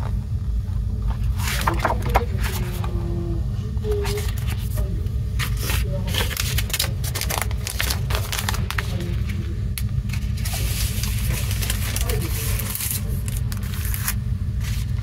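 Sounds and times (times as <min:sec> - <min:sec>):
steady low hum: 0:00.0 - 0:15.0
paper rustling: 0:01.1 - 0:03.0, 0:03.9 - 0:15.0
plastic sleeve crinkling: 0:03.9 - 0:15.0.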